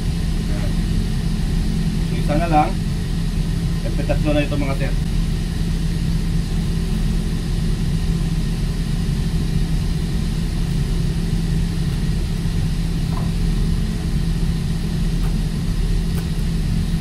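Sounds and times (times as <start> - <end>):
heavy machinery droning: 0.0 - 17.0.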